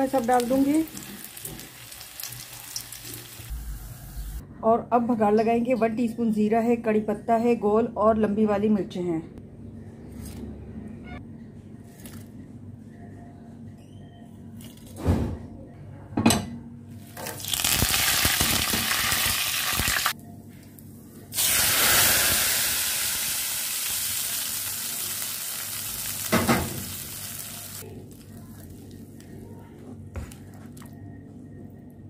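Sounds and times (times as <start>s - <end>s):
spices sizzling in hot oil: 0.0s - 4.4s, 17.3s - 20.2s, 21.4s - 27.8s.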